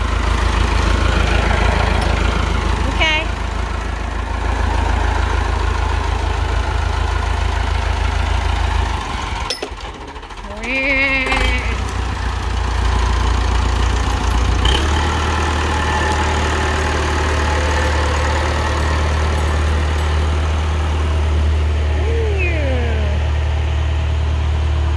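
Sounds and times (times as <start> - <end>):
tractor engine idling: 0.0 - 24.9.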